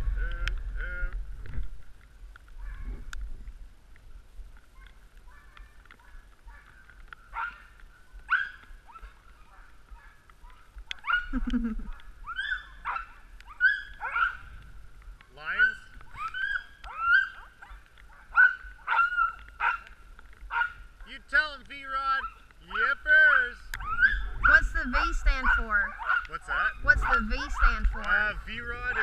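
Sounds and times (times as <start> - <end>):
sled dogs yipping and whining: 2.6 - 3.1, 4.7 - 14.6, 15.2 - 21.0, 22.0 - 29.0.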